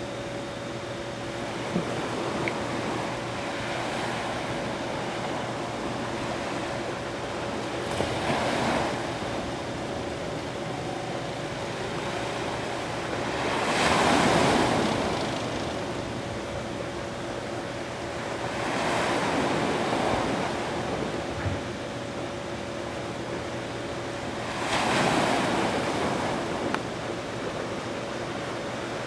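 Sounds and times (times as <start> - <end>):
faint steady hum: 0.0 - 29.0
small waves washing onto beach: 1.4 - 16.7
hiss of surf: 1.4 - 21.7, 23.5 - 29.0.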